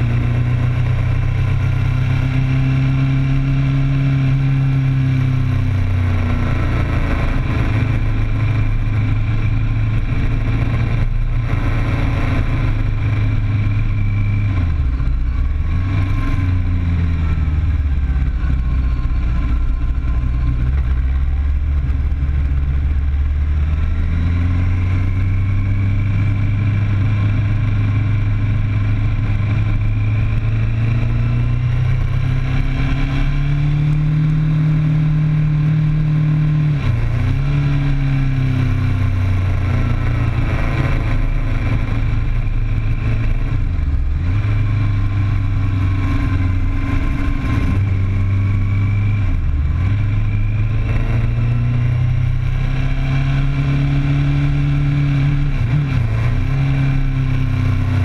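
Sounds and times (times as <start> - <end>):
wind and road noise: 0.0 - 58.0
sport bike engine revving: 22.8 - 58.0.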